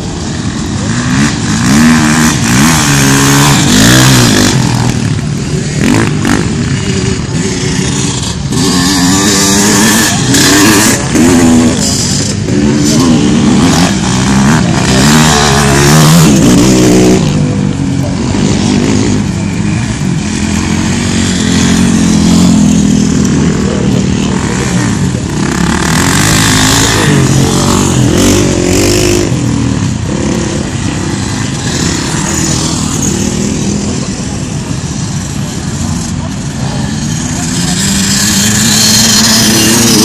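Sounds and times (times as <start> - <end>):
dirt bike engines revving: 0.0 - 40.0.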